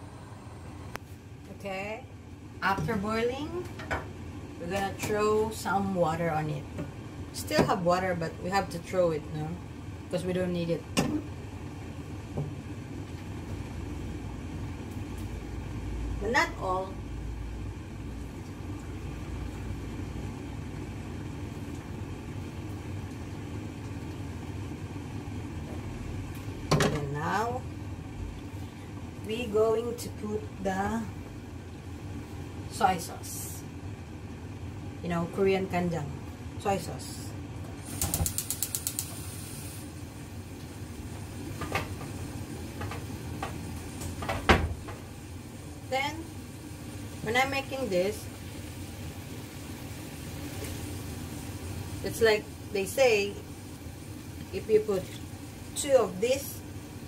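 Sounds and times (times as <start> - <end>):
low rumbling kitchen noise: 0.0 - 57.0
short hiss: 37.8 - 39.9
rapid clicks: 37.9 - 39.1.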